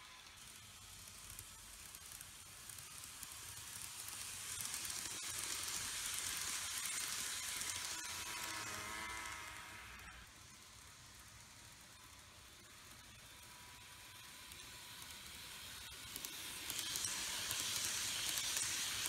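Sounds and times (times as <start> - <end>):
model train rumbling on track: 0.0 - 19.0.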